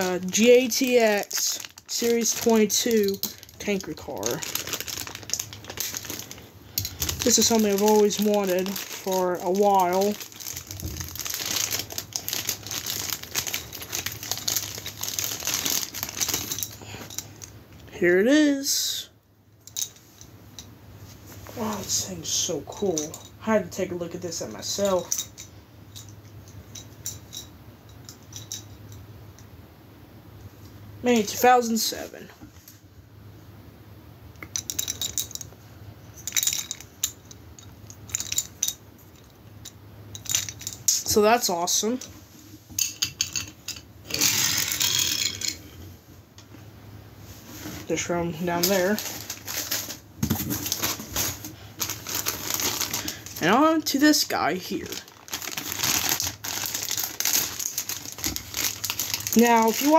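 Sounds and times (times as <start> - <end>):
packing paper crinkling: 0.0 - 17.0, 48.5 - 59.9.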